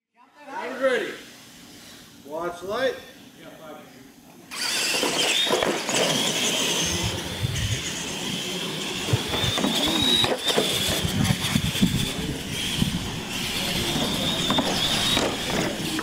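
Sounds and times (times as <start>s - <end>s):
toy truck motor whine: 4.5s - 16.0s
tyres rushing on concrete: 4.8s - 16.0s.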